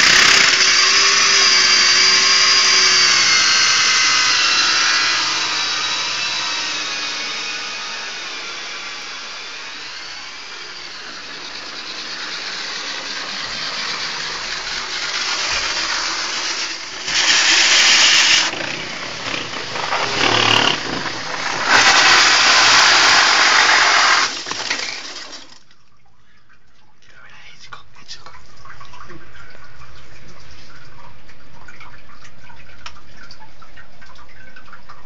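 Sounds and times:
drill grinding through masonry: 0:00.0 - 0:25.6.

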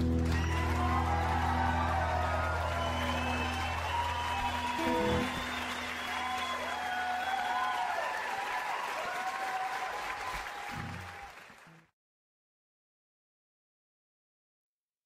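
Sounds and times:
music with gliding melody: 0:00.0 - 0:06.6
audience applauding: 0:00.0 - 0:11.9.

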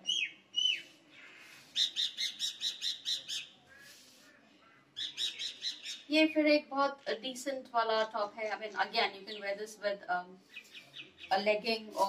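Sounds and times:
bird whistling and chirping: 0:00.0 - 0:00.9, 0:01.8 - 0:03.9, 0:05.0 - 0:06.1.

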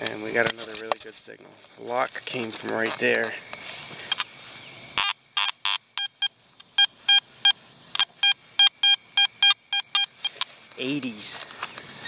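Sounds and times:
metal detector short beeps: 0:05.0 - 0:10.1.

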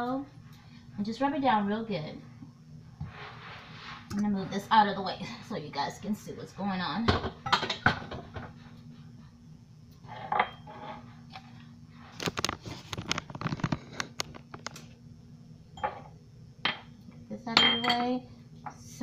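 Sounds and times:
faint steady hum: 0:00.0 - 0:19.0
kitchenware knocking and clinking: 0:07.1 - 0:08.5, 0:17.6 - 0:18.2.

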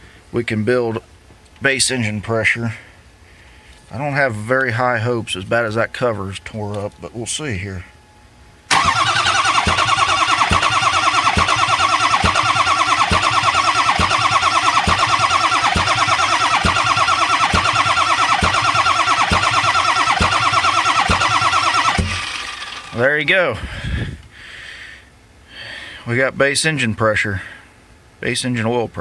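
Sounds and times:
diesel engine cranking by starter: 0:08.7 - 0:23.3.

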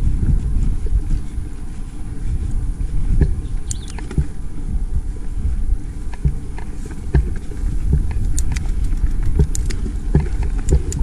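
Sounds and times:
bike rattling over bumps: 0:05.3 - 0:11.0.

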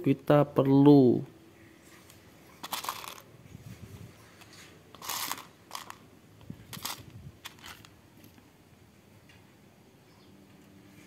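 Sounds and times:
plastic bricks rattling: 0:02.6 - 0:03.3, 0:05.0 - 0:06.0, 0:06.6 - 0:07.9.

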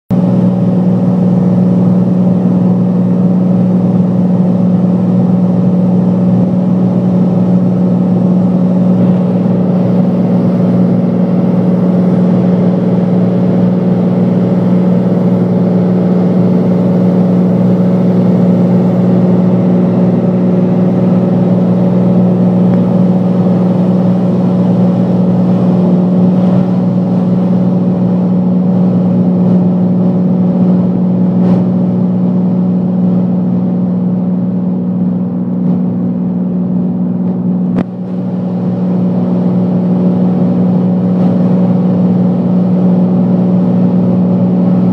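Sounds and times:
aircraft engine droning in cabin: 0:00.1 - 0:44.9.

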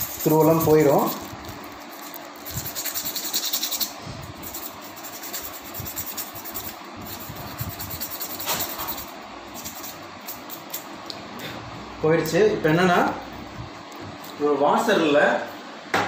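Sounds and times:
sandpaper scraping metal: 0:00.0 - 0:10.5.

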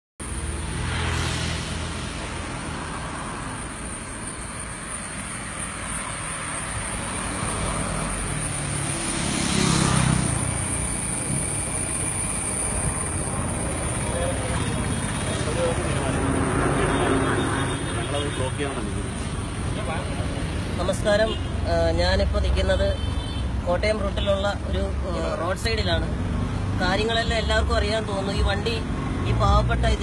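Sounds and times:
road traffic passing: 0:00.2 - 0:30.0.

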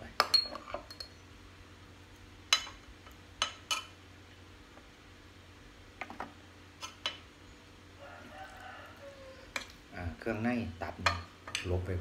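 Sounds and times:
metal spoon clinking on bowl: 0:00.2 - 0:01.2.

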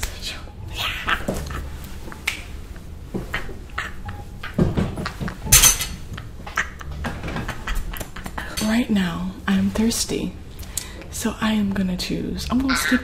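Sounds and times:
woman laughing loudly: 0:03.3 - 0:08.6.

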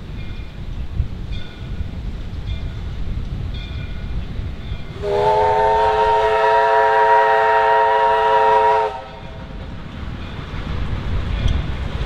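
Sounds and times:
steam locomotive chime whistle: 0:04.8 - 0:09.4.

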